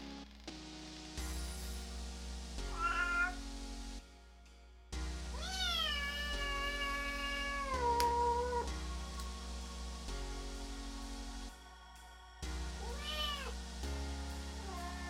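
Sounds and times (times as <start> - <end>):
quiet background music: 0.0 - 15.0
cat meowing: 2.7 - 3.4, 5.4 - 8.7, 12.8 - 13.5.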